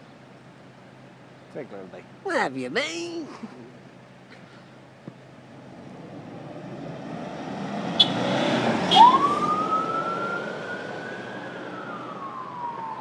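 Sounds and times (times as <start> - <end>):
vehicle noise: 0.0 - 13.0
police siren blips: 8.0 - 13.0
police siren wail: 8.6 - 13.0.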